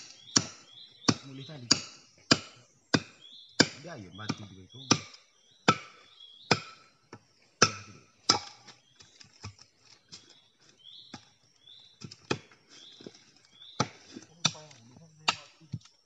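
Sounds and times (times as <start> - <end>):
machete chopping bamboo: 0.0 - 6.9, 7.6 - 9.6, 12.0 - 13.1, 13.8 - 15.9.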